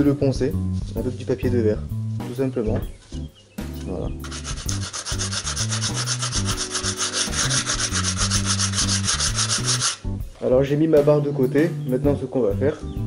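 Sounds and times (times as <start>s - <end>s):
sandpaper rubbing on wood: 3.8s - 10.0s.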